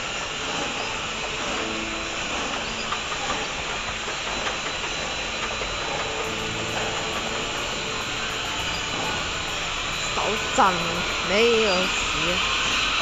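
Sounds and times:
machinery hissing: 0.0s - 13.0s.

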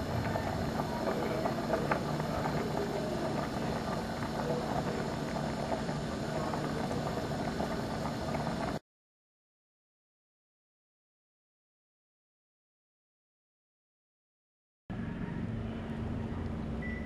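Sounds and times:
steady low hum: 0.0s - 8.8s, 14.9s - 17.0s
sauce simmering with small pops: 0.2s - 8.8s.

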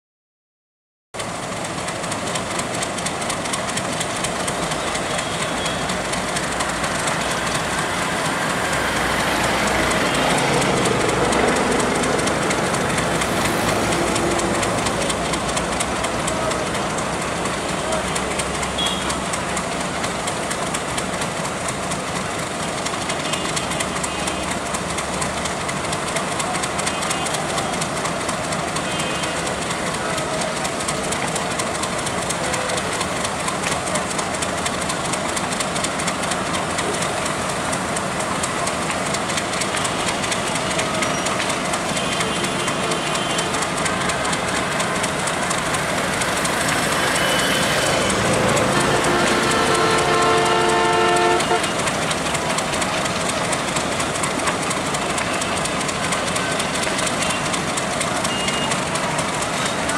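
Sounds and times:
diesel locomotive engine rumble: 1.2s - 59.9s
people's voices: 3.5s - 59.9s.

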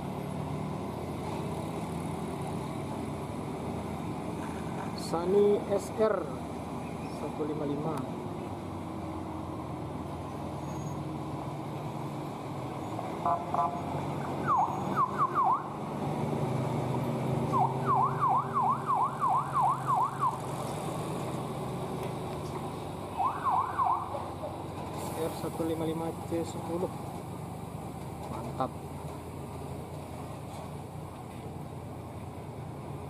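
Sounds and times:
siren yelping: 13.2s - 15.8s, 17.5s - 20.4s, 23.1s - 24.4s.

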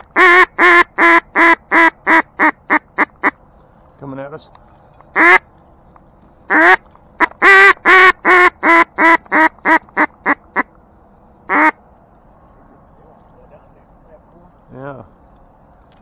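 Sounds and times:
duck call quacks: 0.1s - 3.4s, 5.2s - 5.4s, 6.5s - 10.7s, 11.5s - 11.8s.

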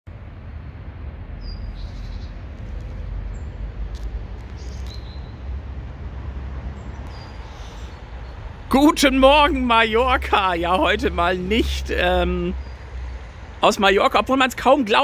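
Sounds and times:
low urban rumble: 0.1s - 15.0s
high bird chirps: 4.6s - 5.4s.

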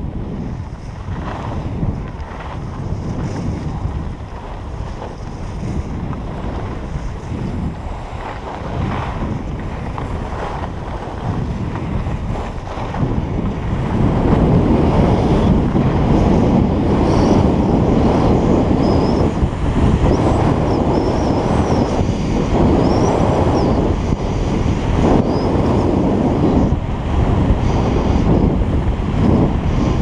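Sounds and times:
wind buffeting microphone: 0.0s - 30.0s
skis scraping on snow: 0.1s - 30.0s.

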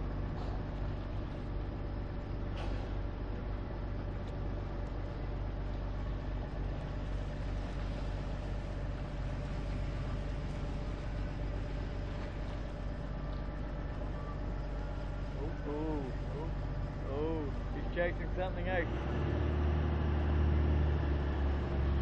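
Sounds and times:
boat engine idling: 0.0s - 22.0s.

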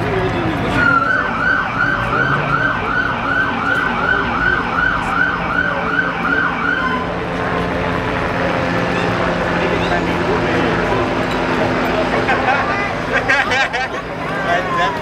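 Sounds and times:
police siren yelping: 0.6s - 7.7s, 14.3s - 15.0s.

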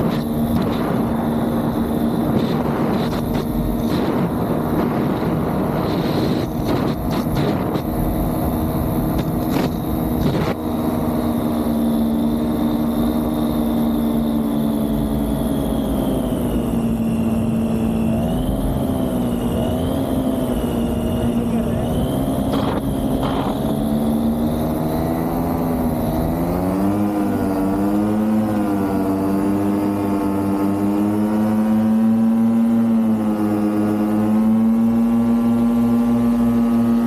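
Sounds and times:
paramotor engine and propeller running: 0.0s - 37.0s
wind whooshing on microphone: 0.0s - 37.0s.

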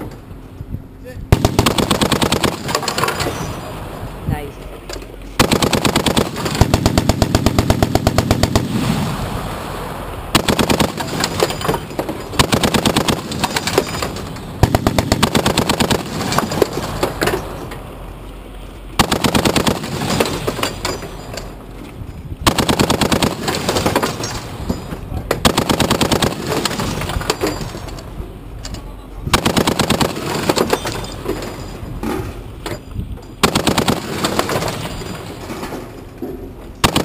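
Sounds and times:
heavy machine gun firing bursts: 1.3s - 3.5s, 5.4s - 9.1s, 10.3s - 17.1s, 19.0s - 21.0s, 22.4s - 24.5s, 25.4s - 27.8s, 29.3s - 31.2s, 33.4s - 35.3s, 36.8s - 37.0s.

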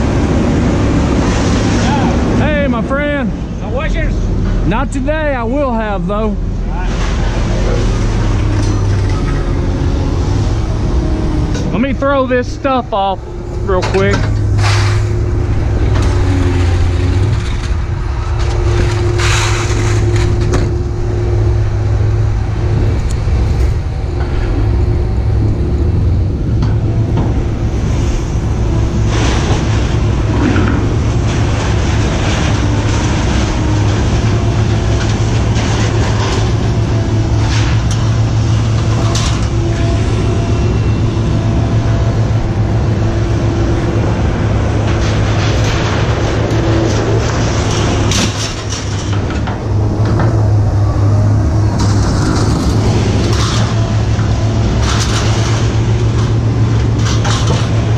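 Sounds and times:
large engine rumbling: 0.0s - 57.9s
clanks and rattles: 6.9s - 57.9s.

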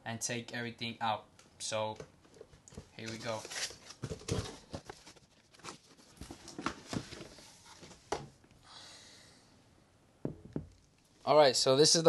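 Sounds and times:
cardboard box rustling: 3.1s - 8.0s.

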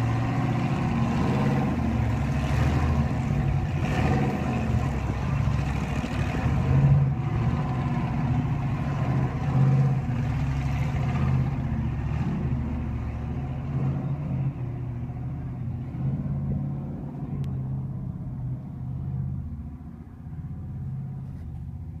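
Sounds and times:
car engine revving: 0.0s - 19.5s.

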